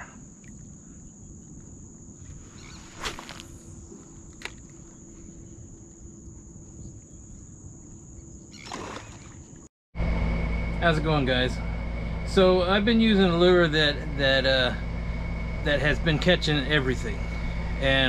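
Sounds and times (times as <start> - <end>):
insect drone: 0.0 - 18.0
low rumble: 10.0 - 18.0.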